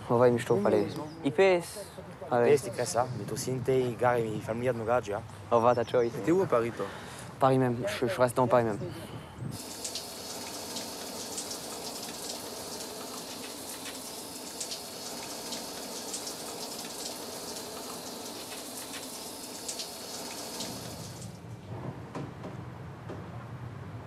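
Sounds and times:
falling water hiss: 9.5s - 21.4s
water drops ticking: 9.6s - 21.4s.

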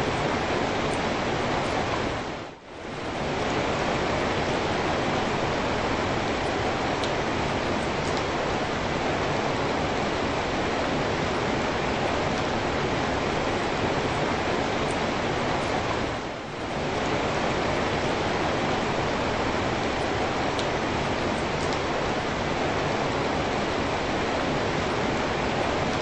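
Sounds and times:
rain on wet pavement: 16.8s - 26.0s.

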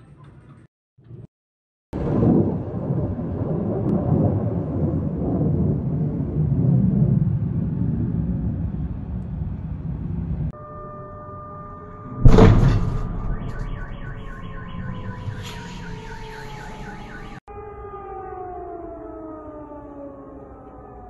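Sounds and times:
loud explosion: 2.0s - 7.4s, 12.2s - 17.4s
car alarm pulsing: 10.5s - 19.4s
air-raid siren: 10.5s - 21.0s.

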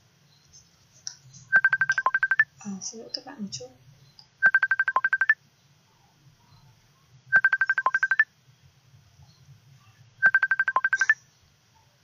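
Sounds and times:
phone ringtone beeps: 1.5s - 2.5s, 4.4s - 5.4s, 7.3s - 8.3s, 10.2s - 11.2s.

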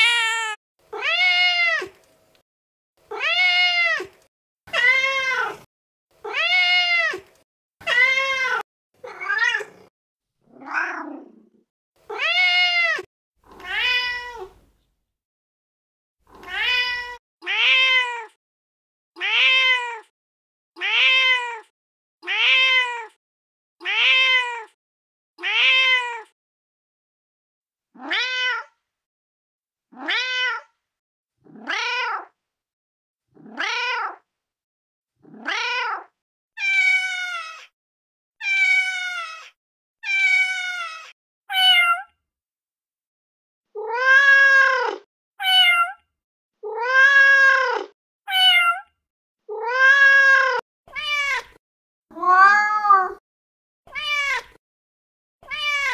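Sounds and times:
cat meowing: 0.0s - 2.0s, 3.1s - 9.9s, 10.5s - 11.4s, 12.1s - 14.6s, 16.3s - 18.4s, 19.2s - 20.1s, 20.8s - 23.2s, 23.8s - 24.8s, 25.4s - 26.3s, 28.0s - 28.8s, 29.9s - 30.7s, 31.6s - 32.4s, 33.4s - 34.2s, 35.3s - 37.7s, 38.4s - 42.1s, 43.7s - 46.0s, 46.6s - 48.9s, 49.5s - 53.2s, 53.9s - 54.6s, 55.4s - 55.9s.

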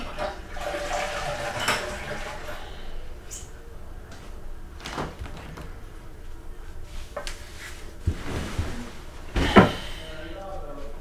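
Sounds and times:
rustling: 4.1s - 9.6s
body thumping onto bed: 8.0s - 9.8s.

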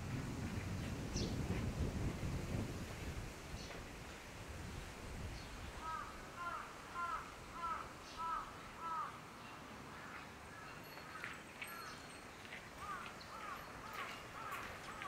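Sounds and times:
crows cawing: 5.8s - 9.2s, 12.8s - 15.0s.

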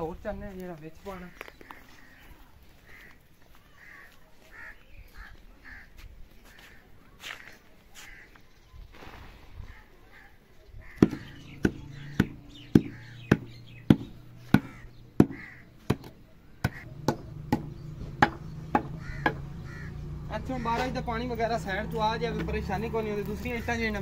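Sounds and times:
wooden handle knocking soil and bricks: 11.0s - 19.4s.

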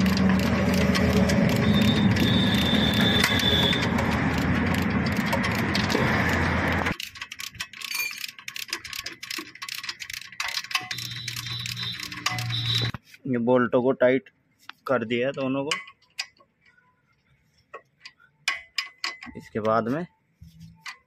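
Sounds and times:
ratchet wrench clicking: 0.0s - 12.9s.

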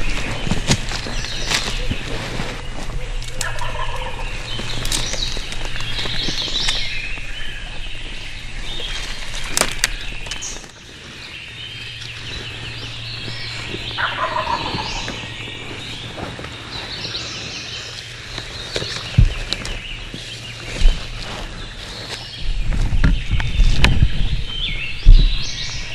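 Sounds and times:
turkey gobbling: 3.0s - 4.8s, 13.9s - 15.9s.

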